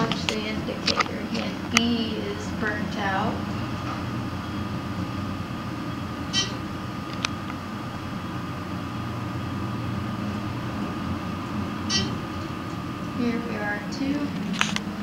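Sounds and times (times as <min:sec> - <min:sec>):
elevator low hum: 0:00.0 - 0:15.0
high ping: 0:11.9 - 0:12.2.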